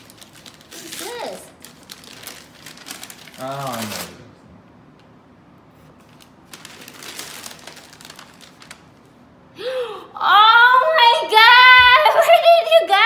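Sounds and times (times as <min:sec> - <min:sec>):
wrapping paper crinkling and tearing: 0:00.0 - 0:04.3, 0:05.8 - 0:09.1
woman exclaiming: 0:10.2 - 0:13.0.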